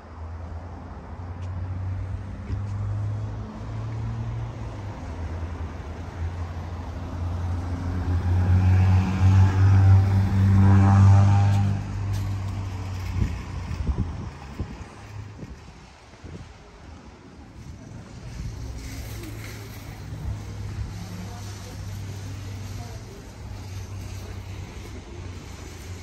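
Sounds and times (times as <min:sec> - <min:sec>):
car engine hum passing by: 0:01.7 - 0:15.0.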